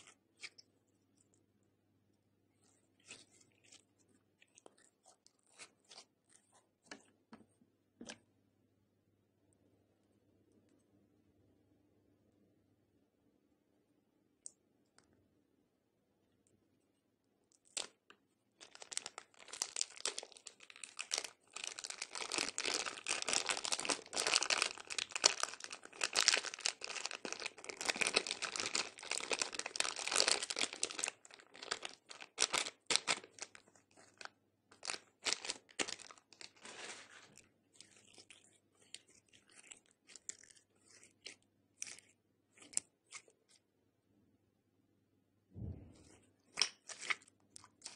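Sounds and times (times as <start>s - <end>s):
plastic bag crinkling and tearing: 18.6s - 41.0s.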